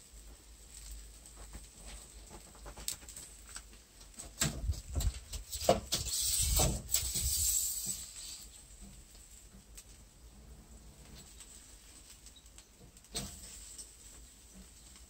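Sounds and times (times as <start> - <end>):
embers crackling: 0.0 - 15.0
metal grill rack sliding: 5.5 - 8.6.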